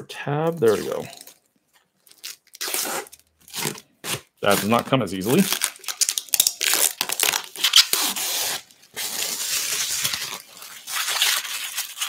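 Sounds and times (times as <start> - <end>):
plastic film being peeled off: 2.0 - 3.8, 4.5 - 12.0.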